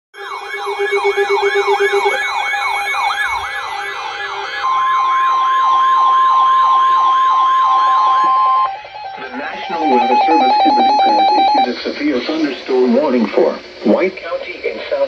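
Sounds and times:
warbling siren tone: 0.1 - 11.8
steady single-pitch alarm tone: 0.1 - 12.4
pulsing beep: 0.2 - 11.8.

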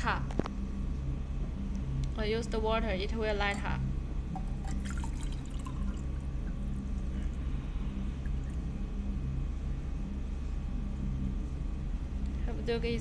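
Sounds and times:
steady low hum: 0.0 - 13.0
water pouring into cup: 4.3 - 6.8.

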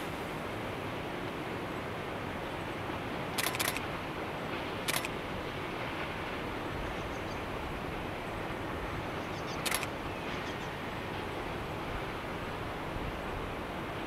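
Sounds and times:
steady rushing noise: 0.0 - 14.0
camera shutter clicks: 3.4 - 3.9, 4.9 - 5.1, 9.6 - 9.9.

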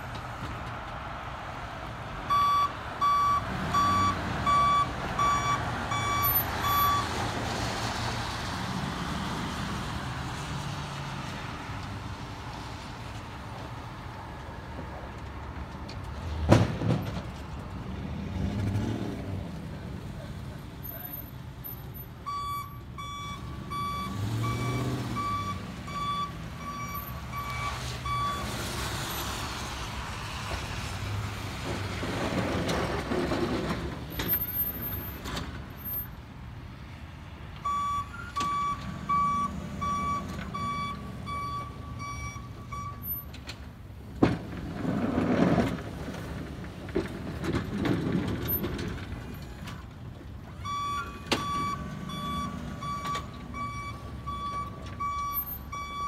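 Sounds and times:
backup alarm beeping: 2.3 - 7.1, 22.3 - 28.5, 37.6 - 43.1, 50.6 - 56.0
truck engine pushing snow: 17.2 - 36.0, 44.0 - 56.0.

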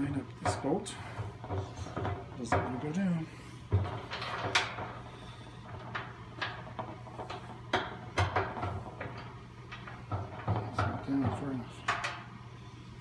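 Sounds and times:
bolts and nuts clicking: 5.6 - 12.3.

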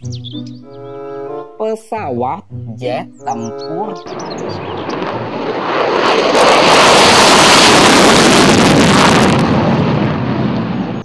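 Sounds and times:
jet engine roaring: 3.6 - 11.0.

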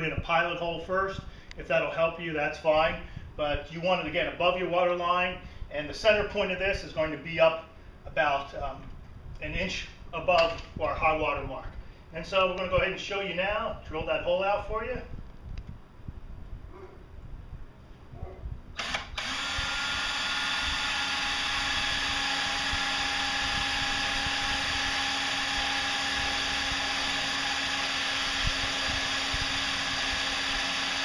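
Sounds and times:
power drill boring through plastic: 18.8 - 31.0.

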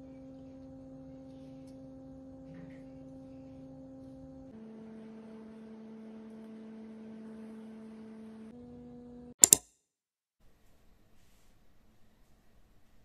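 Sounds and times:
soft humming background music: 0.0 - 9.4
sharp clicks: 9.4 - 9.7.

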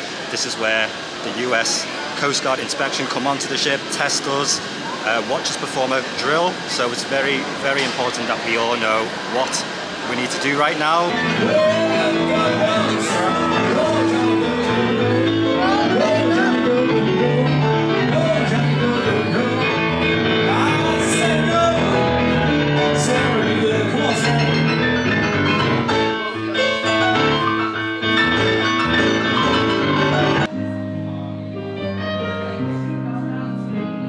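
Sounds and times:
person singing over instruments: 11.1 - 24.9.

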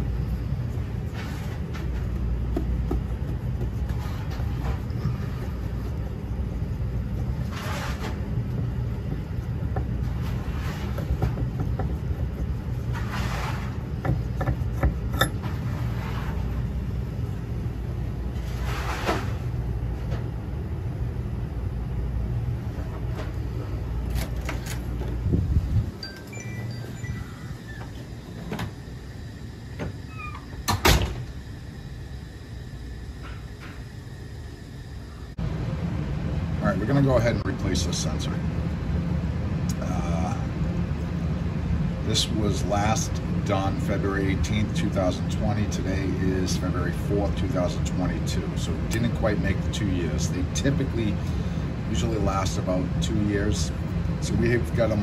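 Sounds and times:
low machinery rumble: 0.0 - 55.0
steady low hum: 0.0 - 55.0
scattered knocks and clicks: 10.9 - 12.6, 14.0 - 15.4.

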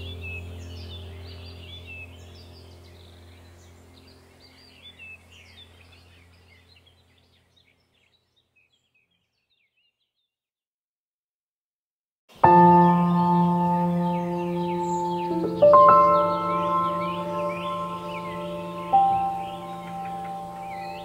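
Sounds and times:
low droning hum: 0.0 - 7.6
small birds chirping: 0.0 - 10.4, 12.3 - 21.0.

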